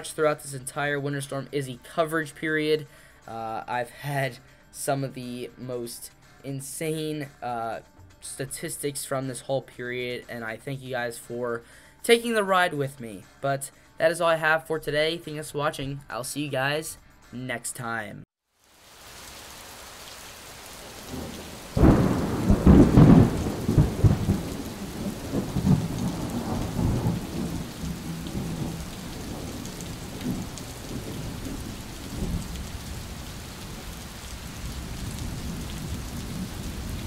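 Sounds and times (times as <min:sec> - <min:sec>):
steady rain: 0:18.6 - 0:37.0
thunder rumbling: 0:20.8 - 0:37.0.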